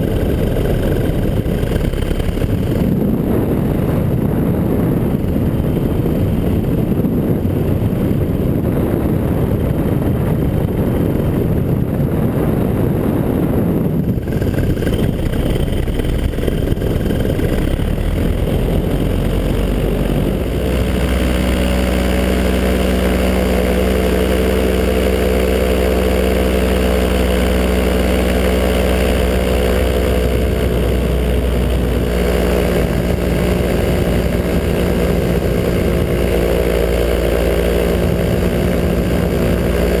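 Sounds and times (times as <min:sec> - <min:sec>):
paramotor engine drone: 0:00.0 - 0:40.0
rushing wind noise: 0:00.0 - 0:40.0.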